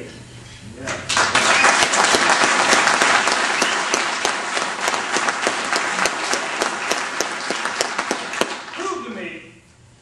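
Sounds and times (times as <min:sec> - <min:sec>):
audience applauding: 0:01.1 - 0:09.1.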